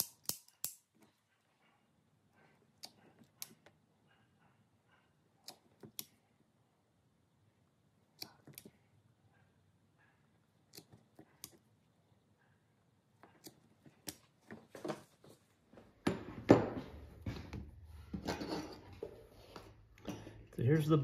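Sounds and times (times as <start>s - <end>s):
hand tools clicking and tapping: 0.0s - 1.3s, 2.4s - 6.2s, 13.2s - 15.0s.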